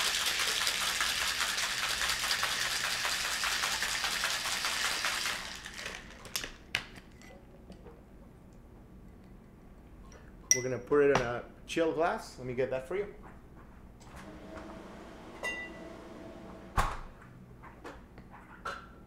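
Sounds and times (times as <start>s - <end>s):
ice rattling in a shaker: 0.0s - 6.4s.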